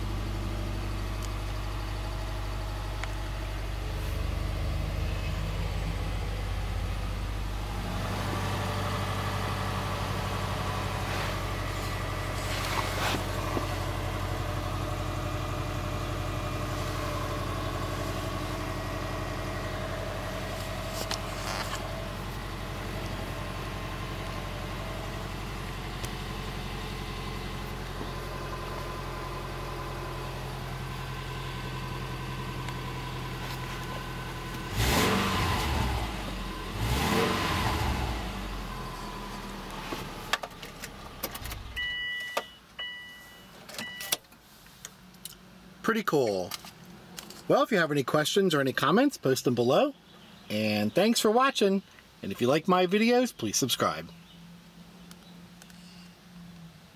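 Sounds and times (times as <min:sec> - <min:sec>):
car engine idling: 0:00.0 - 0:43.9.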